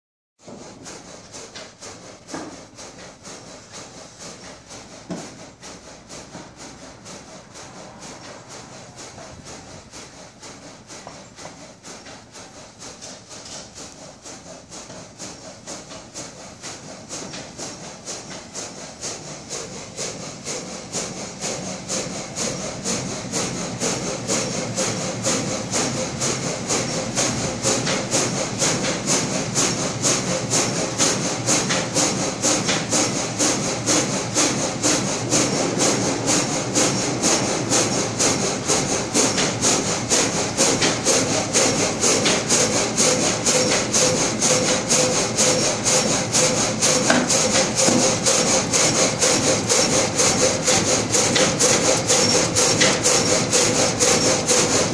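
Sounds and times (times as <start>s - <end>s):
gang saw cutting through log: 44.9s - 54.9s.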